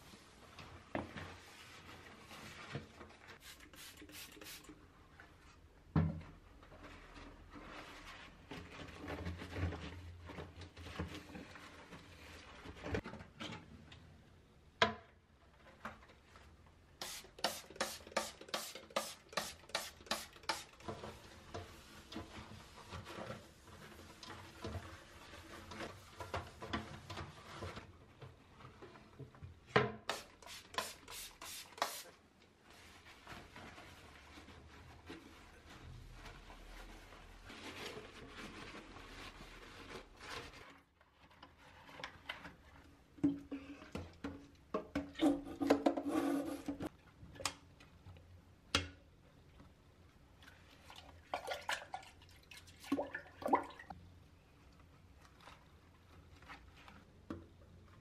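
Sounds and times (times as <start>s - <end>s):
cloth wiping hard surface: 3.4s - 4.7s, 30.1s - 32.1s
spray bottle squirts: 3.4s - 4.7s, 17.0s - 20.8s, 30.1s - 32.1s.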